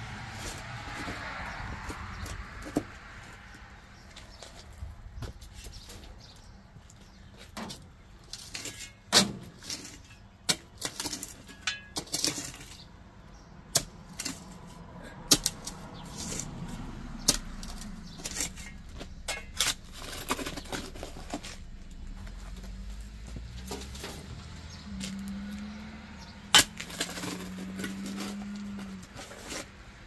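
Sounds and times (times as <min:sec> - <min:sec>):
shovel digging into soil: 0:13.7 - 0:16.5, 0:17.2 - 0:21.9, 0:26.5 - 0:29.9.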